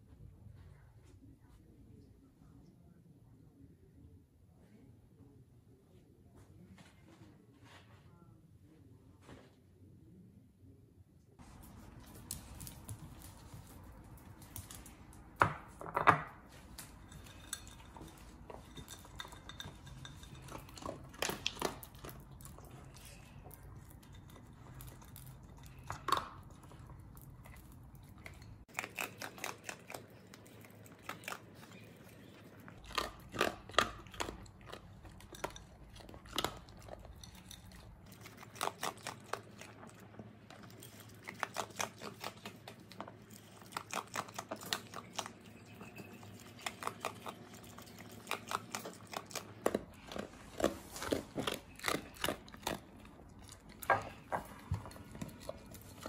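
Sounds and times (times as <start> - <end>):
dog crunching food: 16.7 - 56.0.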